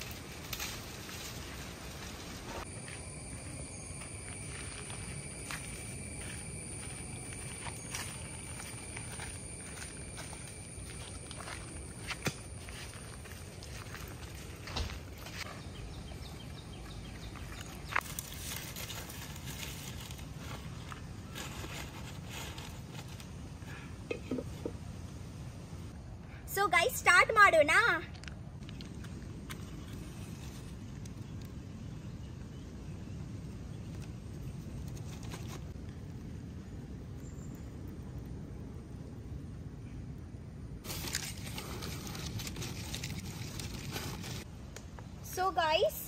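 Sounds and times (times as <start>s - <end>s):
firewood sticks rustling and clicking: 0.0s - 2.4s, 17.6s - 23.4s.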